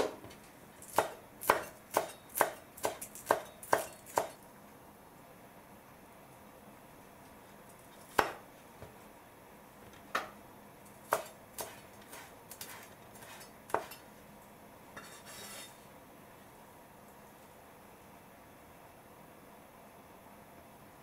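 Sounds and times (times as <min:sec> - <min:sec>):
knife chopping on wooden board: 0:00.9 - 0:04.4, 0:08.1 - 0:08.4, 0:11.1 - 0:14.0
scraping sound: 0:15.0 - 0:15.8.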